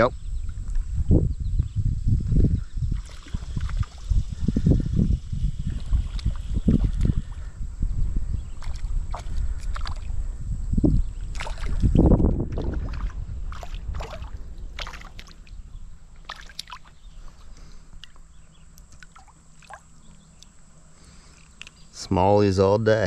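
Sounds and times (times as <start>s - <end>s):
river water sloshing and splashing: 2.9s - 4.2s, 5.7s - 7.1s, 8.5s - 10.2s, 11.2s - 20.5s
water dripping: 16.2s - 17.0s, 18.0s - 20.6s.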